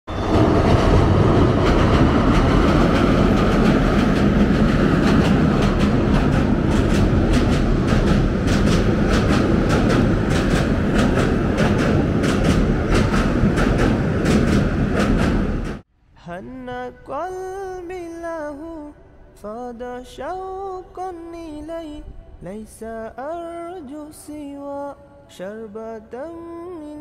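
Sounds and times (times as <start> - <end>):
train rumbling over steel bridge: 0.1 - 15.8
wheel clicks over rail joints: 0.6 - 15.8.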